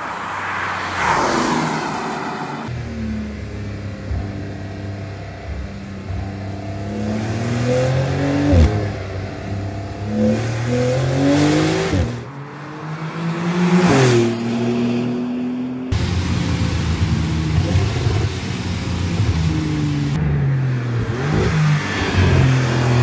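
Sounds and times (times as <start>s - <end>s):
car engine accelerating through gears: 4.0s - 16.0s.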